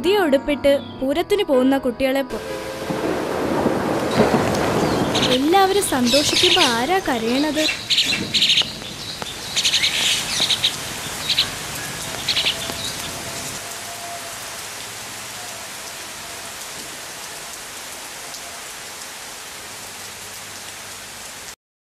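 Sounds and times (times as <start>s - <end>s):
steady rain falling: 2.4s - 21.6s
bird chirps: 4.1s - 13.5s.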